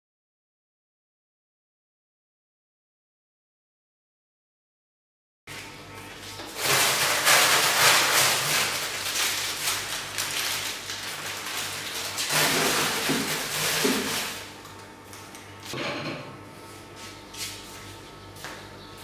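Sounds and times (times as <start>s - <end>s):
plastic bags rustling: 6.3s - 14.8s
small items clattering: 6.6s - 14.5s.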